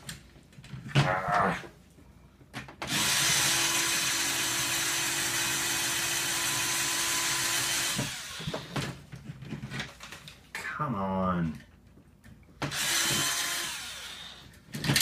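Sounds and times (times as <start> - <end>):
electric screwdriver running: 2.9 - 8.8, 12.7 - 14.5.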